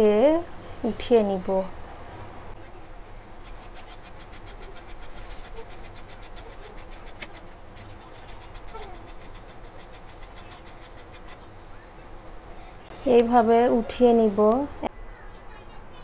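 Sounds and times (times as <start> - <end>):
blade scraping gourd skin: 3.4 - 11.4.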